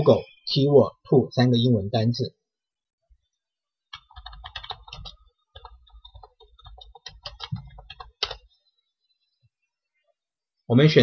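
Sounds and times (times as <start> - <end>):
computer keyboard typing: 3.9 - 8.5.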